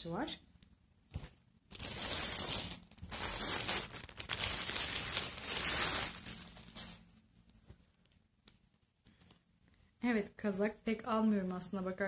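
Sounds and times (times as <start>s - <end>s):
packaging crinkling and rustling: 1.2s - 9.5s.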